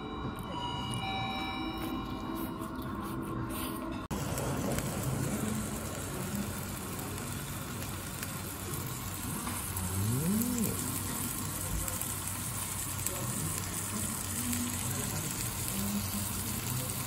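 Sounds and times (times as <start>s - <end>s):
meat sizzling on hot plate: 4.1s - 17.0s.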